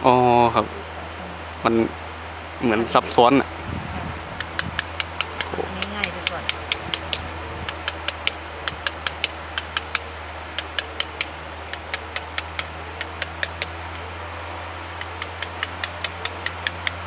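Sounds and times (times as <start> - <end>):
steady low hum: 0.0 - 17.0
hammer tapping chisel on stone: 4.4 - 13.9, 15.0 - 17.0.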